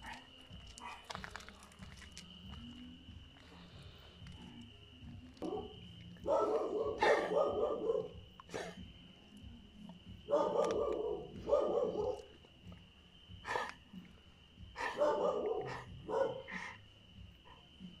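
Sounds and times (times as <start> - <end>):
dog barking: 0.0 - 1.2, 5.4 - 8.8, 10.2 - 12.4, 13.4 - 13.8, 14.7 - 16.8.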